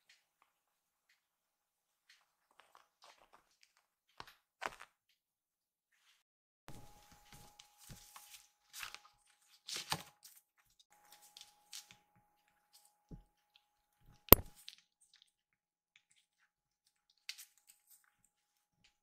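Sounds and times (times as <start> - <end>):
sharp knock: 14.3 - 14.5.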